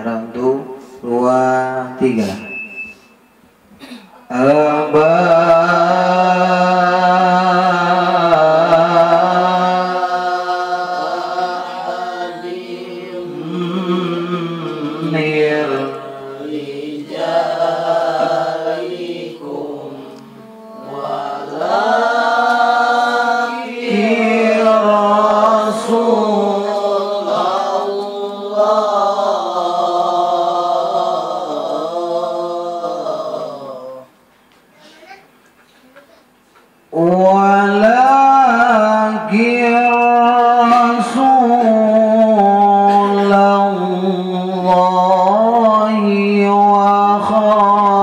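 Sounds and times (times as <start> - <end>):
man chanting into a microphone: 0.0 - 2.5, 4.3 - 11.4, 13.3 - 17.2, 36.9 - 48.0.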